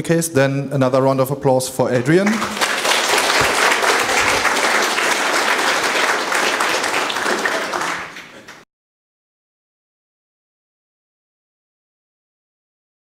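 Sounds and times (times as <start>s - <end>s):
audience applauding: 2.1s - 8.6s.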